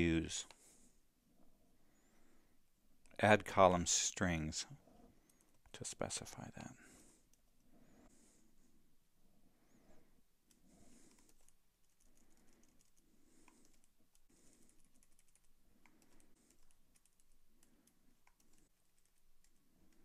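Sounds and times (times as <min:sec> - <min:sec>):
faint keyboard typing: 0:00.0 - 0:00.8, 0:05.1 - 0:08.3, 0:09.9 - 0:20.0.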